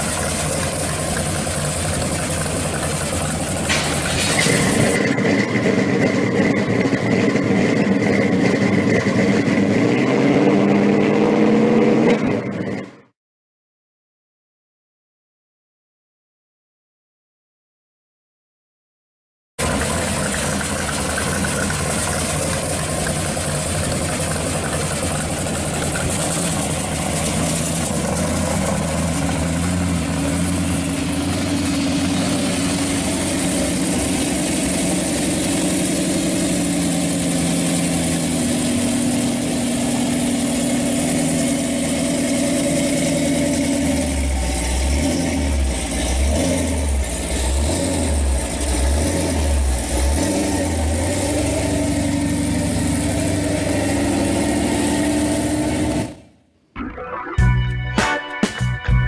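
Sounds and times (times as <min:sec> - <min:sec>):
car engine idling lumpily: 0:00.0 - 0:09.9, 0:19.6 - 0:46.2.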